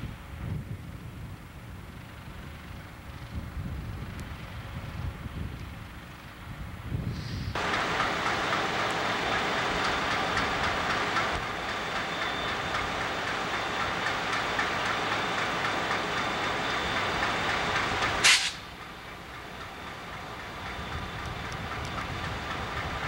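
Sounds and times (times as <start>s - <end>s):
wheel-on-rail rush: 0.0s - 23.0s
sharp high-pitched burst: 18.2s - 18.7s.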